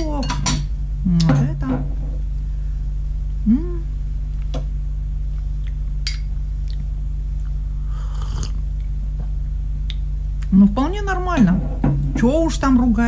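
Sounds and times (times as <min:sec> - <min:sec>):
low electrical hum: 0:00.0 - 0:13.0
person humming mm: 0:03.4 - 0:04.0, 0:07.8 - 0:08.6.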